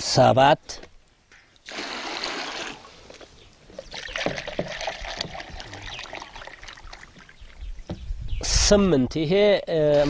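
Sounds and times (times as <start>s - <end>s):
water splashing onto straw: 1.6s - 3.0s.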